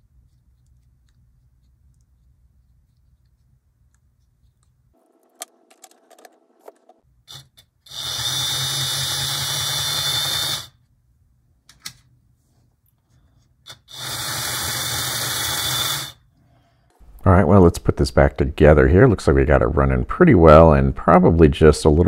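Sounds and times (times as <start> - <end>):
small electric motor running: 7.9 - 10.8, 13.7 - 16.2.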